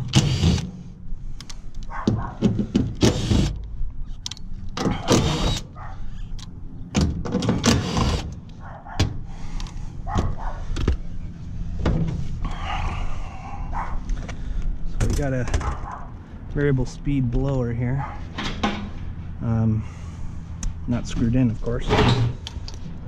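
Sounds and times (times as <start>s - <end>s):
cordless drill bursts: 0.0s - 0.7s, 3.0s - 3.6s, 5.1s - 5.6s, 7.6s - 8.2s.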